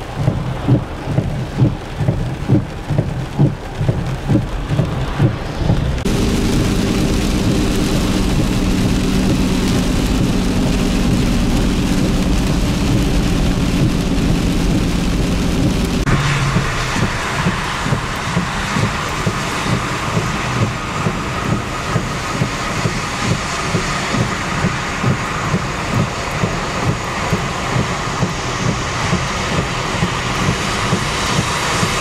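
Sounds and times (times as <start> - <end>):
engine and road hum: 0.0 - 32.0
heavy rain: 0.0 - 32.0
tyres rushing on wet road: 0.0 - 32.0
low thumps: 0.1 - 22.1.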